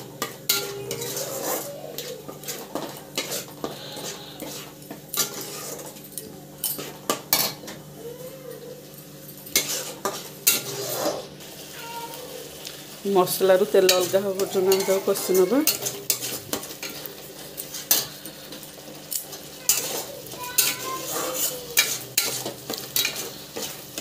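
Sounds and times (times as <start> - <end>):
paste sizzling: 0.0 - 6.0, 9.5 - 24.0
wooden spatula scraping a pan: 0.5 - 6.0, 9.5 - 12.4, 13.6 - 24.0.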